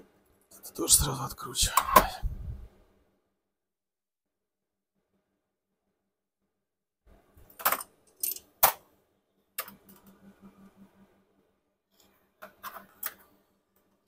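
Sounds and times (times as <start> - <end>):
small metal parts clinking: 7.6 - 8.8.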